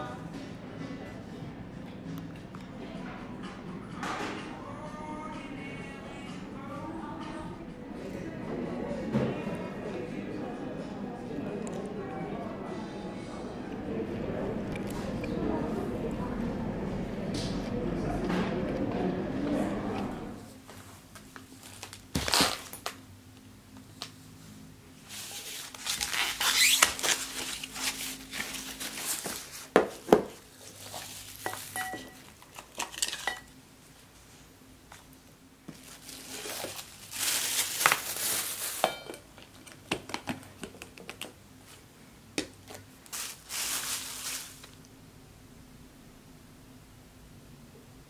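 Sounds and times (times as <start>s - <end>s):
plastic film tearing and crinkling: 21.6s - 23.0s, 25.1s - 29.7s, 30.6s - 31.8s, 35.8s - 38.9s, 43.1s - 44.8s.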